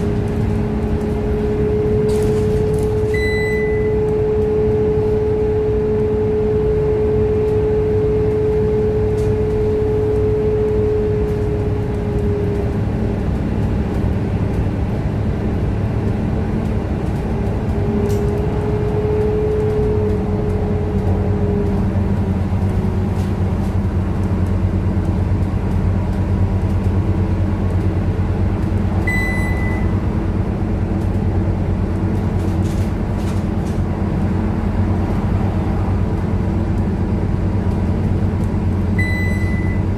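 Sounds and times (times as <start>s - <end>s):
bus engine drone: 0.0s - 39.9s
high drivetrain whine: 0.0s - 39.9s
short beep: 3.1s - 4.1s, 29.0s - 30.0s, 39.0s - 39.9s.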